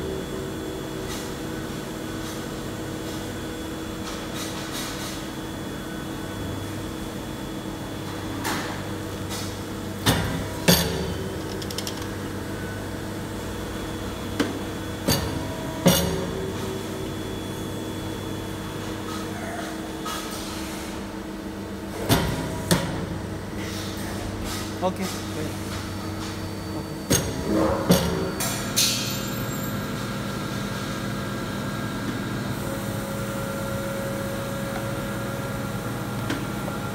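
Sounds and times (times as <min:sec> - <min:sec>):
hydraulic unit humming: 0:21.3 - 0:36.9.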